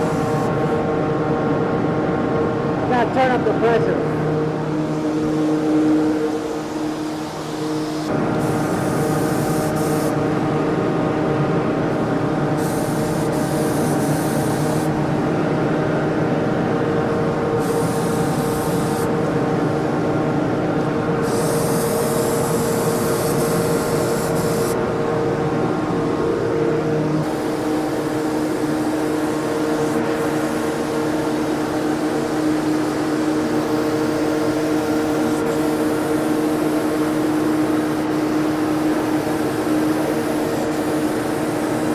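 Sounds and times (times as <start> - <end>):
spray gun hissing: 0.0 - 0.7, 4.8 - 10.2, 12.5 - 15.0, 17.6 - 19.1, 21.2 - 24.8, 27.2 - 41.9
sprayer and exhaust fan humming: 0.0 - 41.9.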